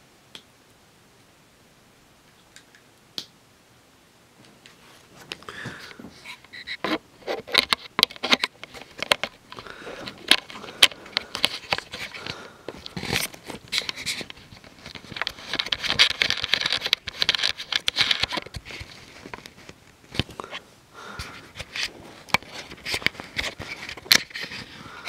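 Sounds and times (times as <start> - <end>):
fabric rustling and scraping: 4.4 - 25.0
handling clicks and knocks: 5.3 - 20.4.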